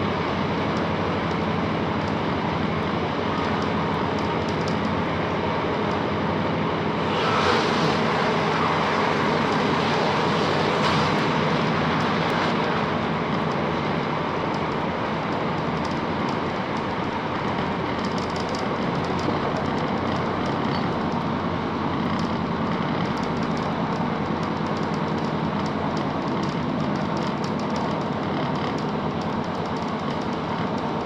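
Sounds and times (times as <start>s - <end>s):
diesel train engine: 0.0s - 31.0s
wheels on rails: 0.0s - 31.0s.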